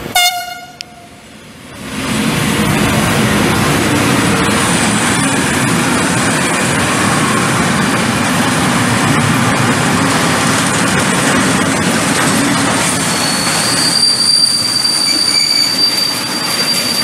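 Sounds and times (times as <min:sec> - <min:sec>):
freight train wheels rumbling on rails: 0:00.0 - 0:17.0.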